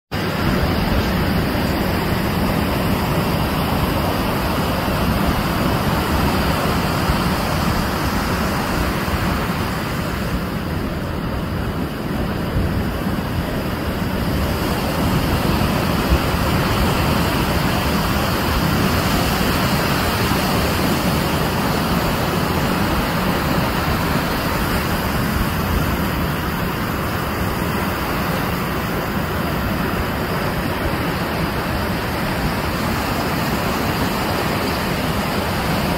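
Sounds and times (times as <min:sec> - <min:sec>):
ocean surf breaking: 0:00.1 - 0:35.9.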